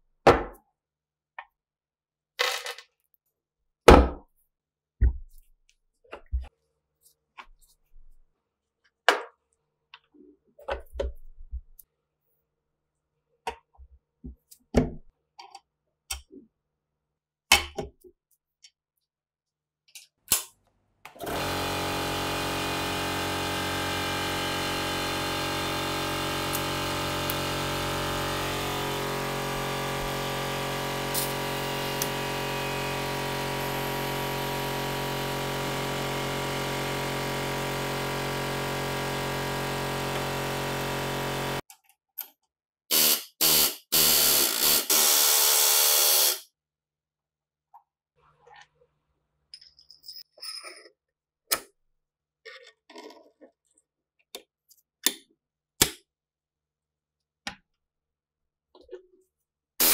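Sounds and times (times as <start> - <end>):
pneumatic air hammer: 21.2 - 41.6, 42.9 - 46.4.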